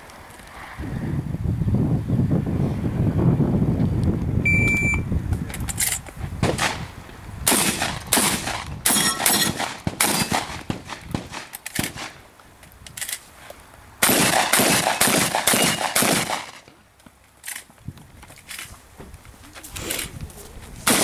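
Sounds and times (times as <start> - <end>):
wind buffeting microphone: 0.6 - 13.1, 17.7 - 21.0
shot timer beep: 4.5 - 5.0
shotgun shots: 6.4 - 6.9, 7.5 - 12.2, 14.0 - 16.7.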